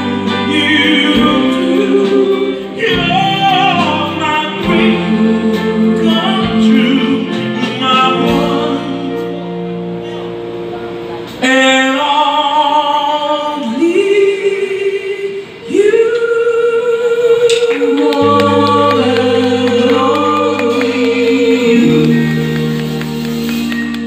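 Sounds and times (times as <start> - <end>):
singers singing in harmony: 0.0 - 9.4, 13.2 - 23.3.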